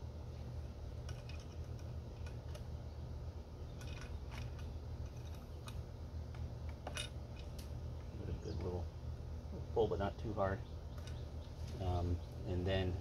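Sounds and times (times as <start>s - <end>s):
steady low hum: 0.0s - 13.0s
metallic clicks of small parts: 1.0s - 2.7s, 3.7s - 7.7s.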